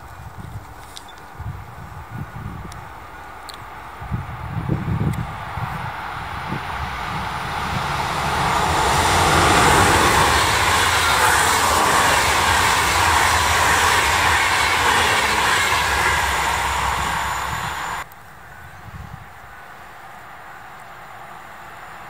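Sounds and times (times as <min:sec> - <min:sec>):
train passing at speed: 0:01.8 - 0:18.6.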